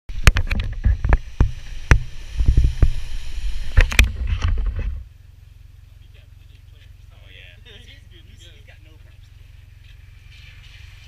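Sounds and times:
car splashing through muddy water: 9.4 - 11.0.

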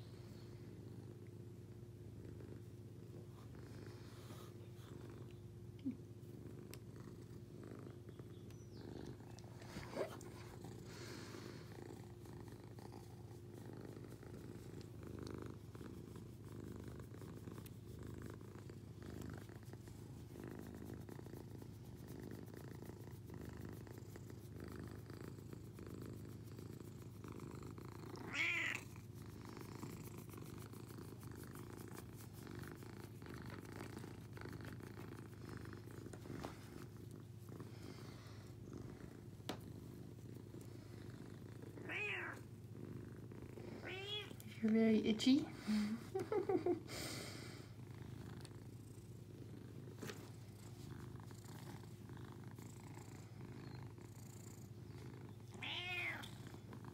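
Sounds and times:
cat purring: 0.0 - 56.9
cat crying: 28.3 - 28.8.

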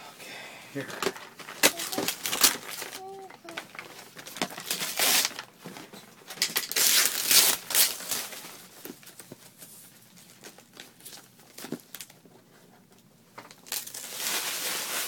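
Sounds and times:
wrapping paper tearing and crumpling: 1.4 - 5.5, 6.4 - 8.7, 13.5 - 15.0.

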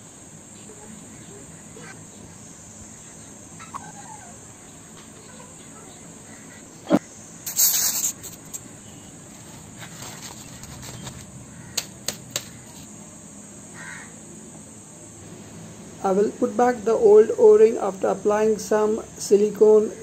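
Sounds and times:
crickets chirping: 0.0 - 20.0
short hissing burst: 7.4 - 8.8
sharp click: 11.8 - 12.6.

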